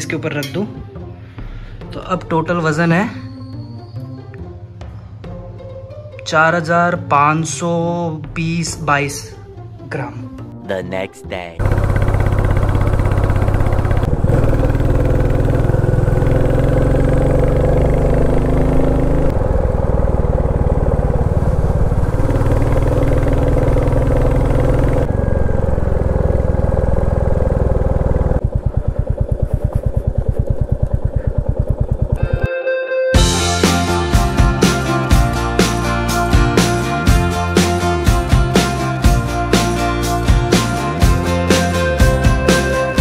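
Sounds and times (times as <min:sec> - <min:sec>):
motorcycle engine running: 0:11.6 - 0:32.5.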